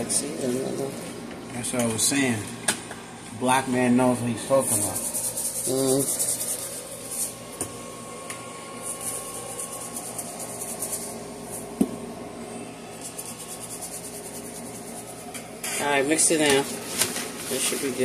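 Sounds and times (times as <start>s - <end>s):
spice shaker rattling: 4.7s - 7.3s, 8.9s - 11.2s, 13.0s - 15.2s.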